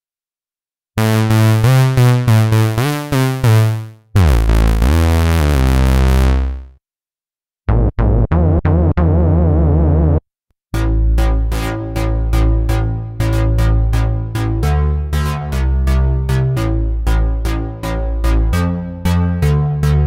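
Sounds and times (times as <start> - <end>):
synthesizer bass notes: 1.0 - 6.7, 7.7 - 10.2, 10.8 - 20.0.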